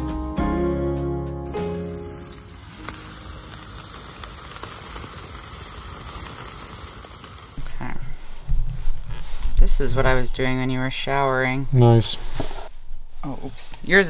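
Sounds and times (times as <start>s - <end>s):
burger patty sizzling on grill: 1.4s - 7.9s
faint fire crackles: 1.5s - 14.0s.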